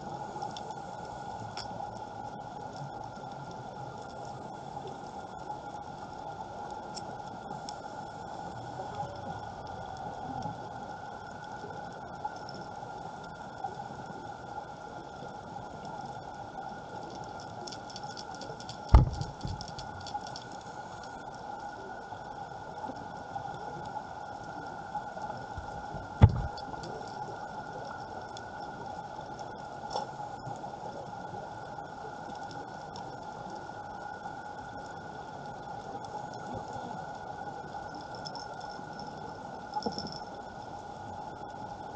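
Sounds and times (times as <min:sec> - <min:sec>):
underwater hiss and hum: 0:00.0 - 0:41.9
crackling clicks: 0:00.2 - 0:08.3, 0:08.9 - 0:13.7, 0:15.1 - 0:41.9
fish bumping camera housing: 0:18.9 - 0:19.6, 0:26.2 - 0:26.6.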